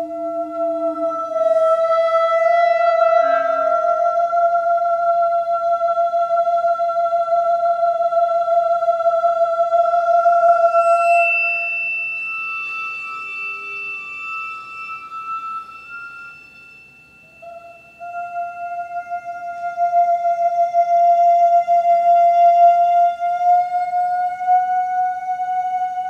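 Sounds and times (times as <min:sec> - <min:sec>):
chamber music high tones: 0:09.6 - 0:26.0.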